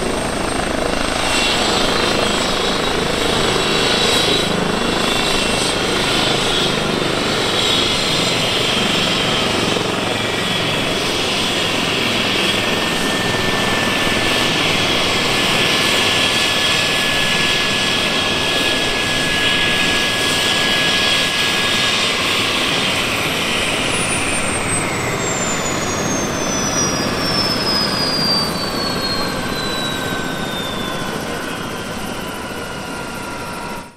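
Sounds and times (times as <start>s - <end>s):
helicopter rotor and turbine: 0.0s - 33.9s.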